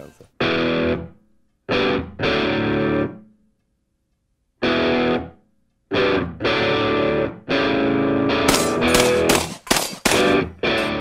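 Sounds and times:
distorted electric guitar chords: 0.4s - 3.2s, 4.6s - 9.3s, 10.4s - 11.0s.

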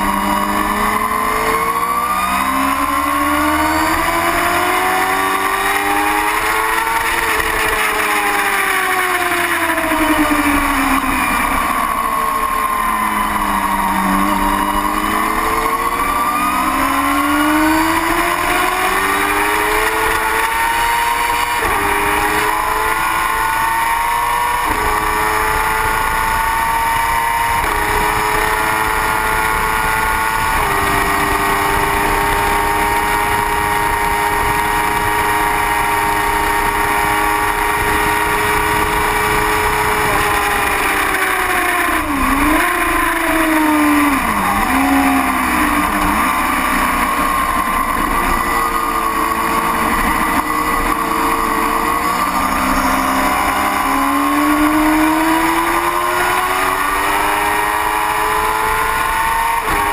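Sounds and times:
motorcycle engine revving: 0.0s - 59.9s
heavy wind noise: 24.7s - 46.2s.

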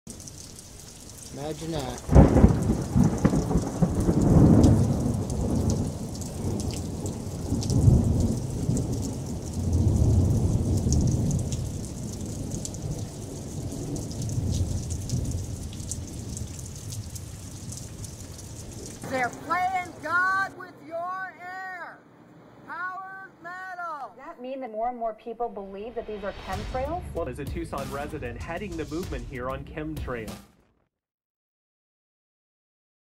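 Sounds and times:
raindrops pattering: 0.1s - 20.4s
thunder crack: 1.6s - 20.2s, 26.0s - 29.5s
rolling thunder rumbles: 1.7s - 20.1s, 26.2s - 28.9s.

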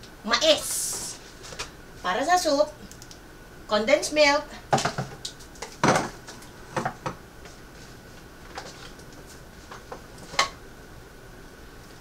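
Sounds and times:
faint high hum: 0.0s - 12.0s.

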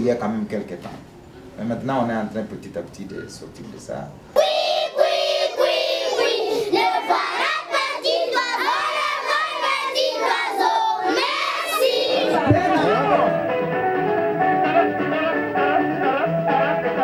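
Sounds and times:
children singing in unison: 4.4s - 13.2s.

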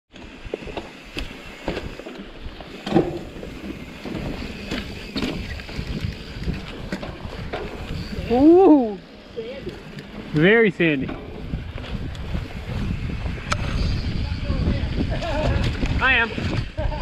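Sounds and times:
bike clicks knocks and rattles: 0.1s - 8.0s, 9.6s - 12.5s
bike tyres on dirt trail: 0.1s - 17.0s
wind on microphone: 0.5s - 9.0s, 11.0s - 17.0s.

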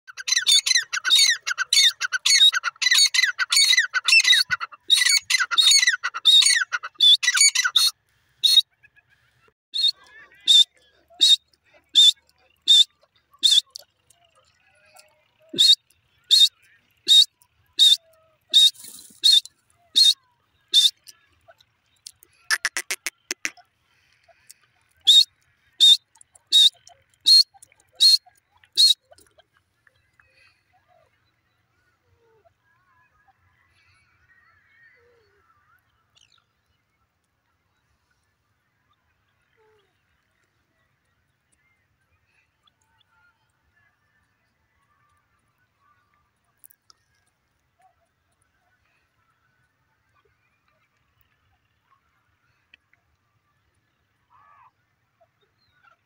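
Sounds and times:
bird shrill repeated calls: 0.1s - 8.6s, 12.0s - 13.8s, 15.5s - 21.1s, 22.5s - 23.5s, 25.0s - 28.2s, 28.8s - 29.0s
francolin calling: 22.5s - 23.5s.

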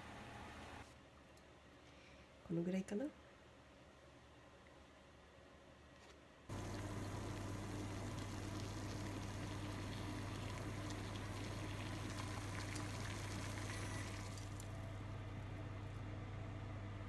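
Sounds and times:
low steady hum: 0.0s - 17.0s
water boiling in a saucepan: 6.5s - 15.2s.

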